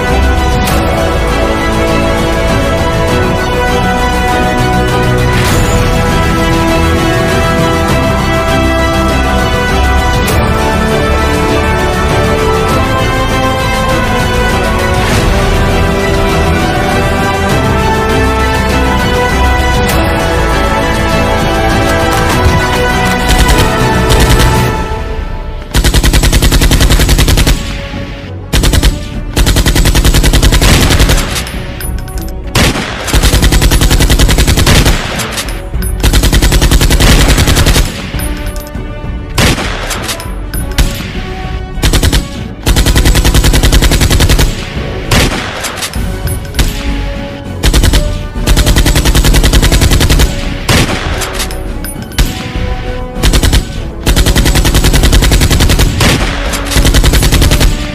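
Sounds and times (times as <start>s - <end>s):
rapid automatic gunfire: 22.0s - 24.8s, 25.7s - 27.9s, 28.5s - 31.5s, 32.6s - 38.2s, 41.8s - 46.0s, 47.6s - 51.5s, 53.2s - 57.9s.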